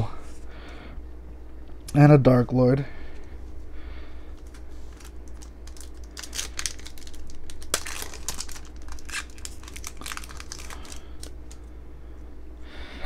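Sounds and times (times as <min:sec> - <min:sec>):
foil wrapper tearing and crinkling: 0:04.4 - 0:11.6.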